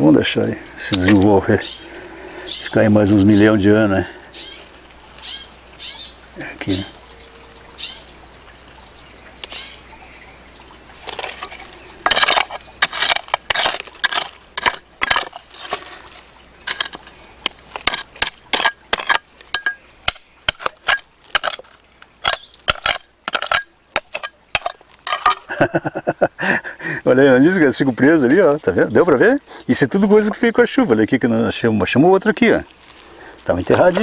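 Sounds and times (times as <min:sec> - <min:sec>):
hand hoe striking stony soil: 0:11.0 - 0:25.5.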